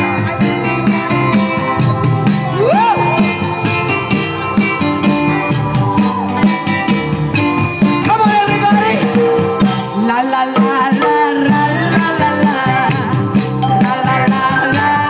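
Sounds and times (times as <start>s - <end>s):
live band playing with guitar: 0.0s - 15.0s.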